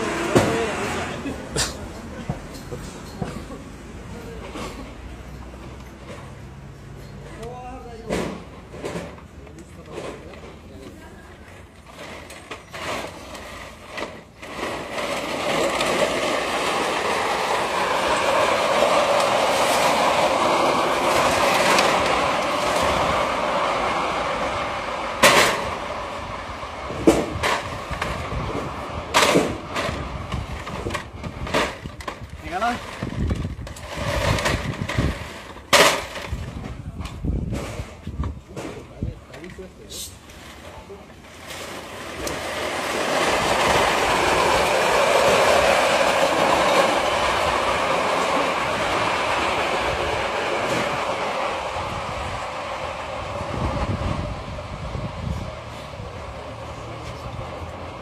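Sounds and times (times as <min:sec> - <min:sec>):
plastic crate scraping down concrete: 0:00.0 - 0:01.4, 0:11.5 - 0:39.0, 0:40.2 - 0:55.5.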